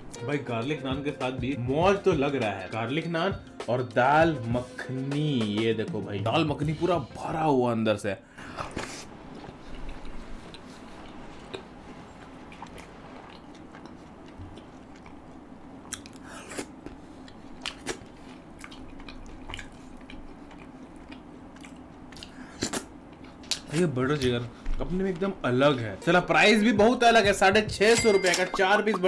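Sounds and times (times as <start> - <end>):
steady low hum: 8.1 - 29.0
close chewing and mouth sounds: 8.5 - 25.4
soft mouth smacks and clicks: 8.8 - 11.7.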